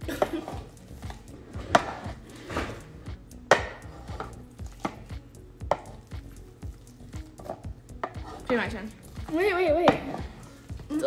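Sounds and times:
masher knocking wooden bowl: 3.5 - 5.0, 5.6 - 6.1.

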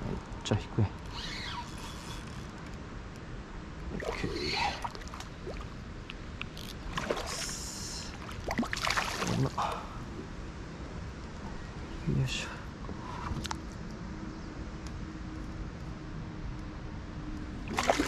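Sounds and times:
water splashing beside a boat: 3.9 - 9.9, 17.6 - 18.0.

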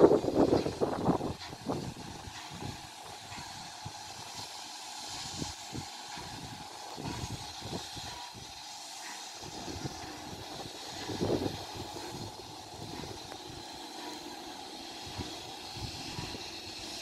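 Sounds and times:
wind buffeting microphone: 0.0 - 4.3, 9.4 - 13.7
distant steam locomotive: 0.0 - 17.0.

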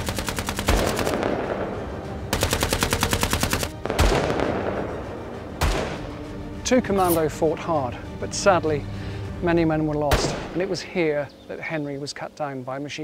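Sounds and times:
machine-gun fire: 0.0 - 1.6, 2.3 - 4.8.

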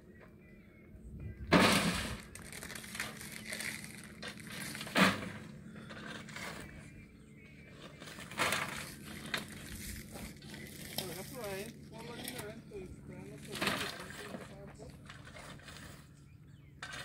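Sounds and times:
crunching and scraping on gravelly soil: 1.5 - 17.0.

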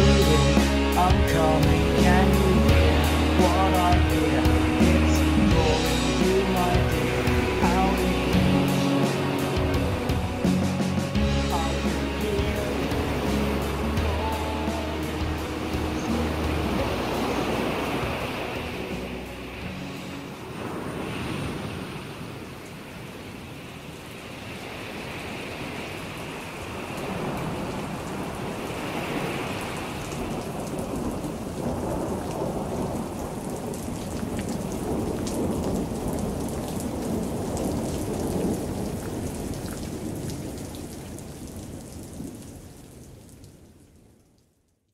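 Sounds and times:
steady rain: 0.0 - 44.9
rumbling thunder: 30.2 - 40.6.

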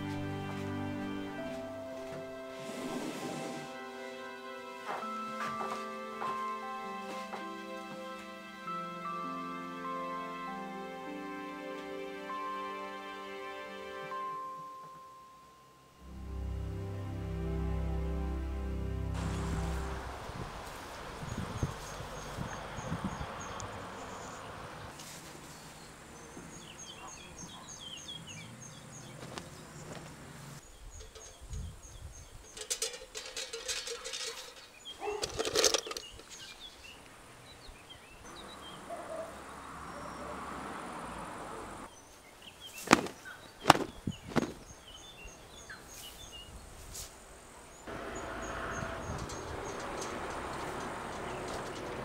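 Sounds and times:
bird chirping: 19.2 - 46.7, 47.6 - 52.0
clothespins clattering in a pail: 32.4 - 36.5
pegs clicking onto rack: 32.6 - 36.4.

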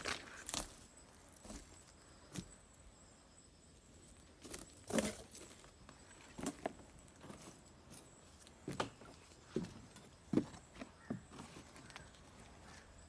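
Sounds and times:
footsteps on wooden deck: 6.4 - 12.1.

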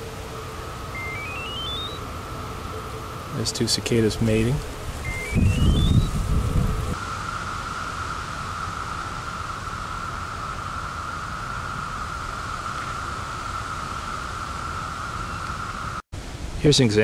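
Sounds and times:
cicadas droning: 0.0 - 16.6.

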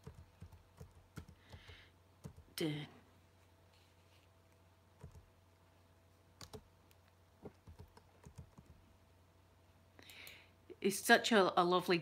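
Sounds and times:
faint keyboard typing: 0.0 - 2.6, 4.5 - 5.4, 6.3 - 9.0.

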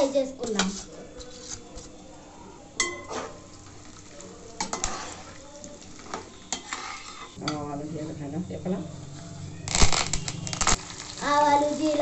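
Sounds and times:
spices sizzling in hot oil: 2.7 - 12.0.

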